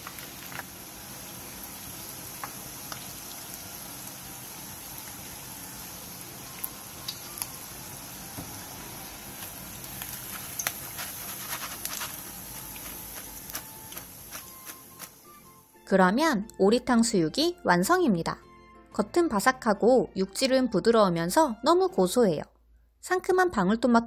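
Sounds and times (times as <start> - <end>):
oil sizzling in a frying pan: 0.0 - 15.8.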